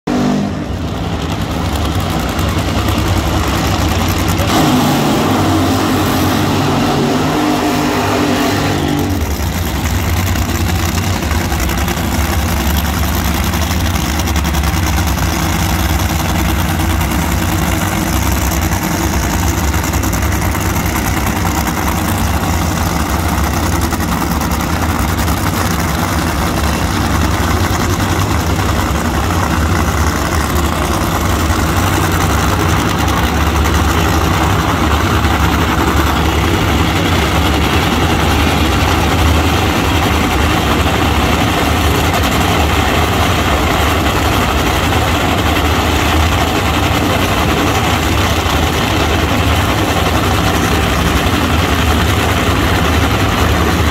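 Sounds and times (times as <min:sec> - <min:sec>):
dragster engines running loud: 0:00.0 - 0:53.9.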